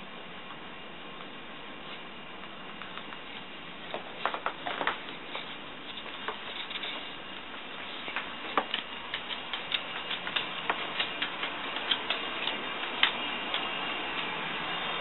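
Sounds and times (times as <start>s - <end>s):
dog's claws clicking on wood floor: 2.8s - 14.4s.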